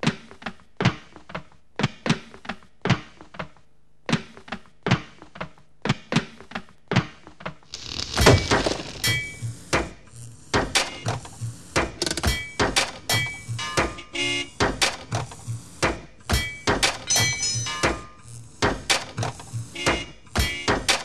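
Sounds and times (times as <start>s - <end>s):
rhythmic thuds and knocks: 7.8s - 21.0s.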